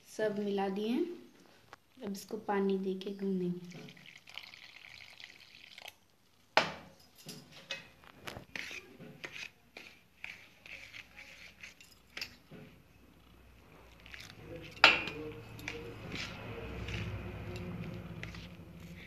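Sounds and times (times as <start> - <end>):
water pouring into flour: 3.8 - 6.5
spoon scraping steel bowl: 7.5 - 19.0.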